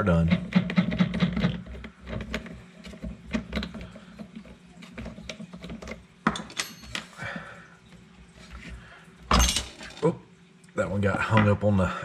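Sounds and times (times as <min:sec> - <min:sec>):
small clicks and scrapes: 0:00.3 - 0:06.1
metallic ring: 0:06.4 - 0:07.2.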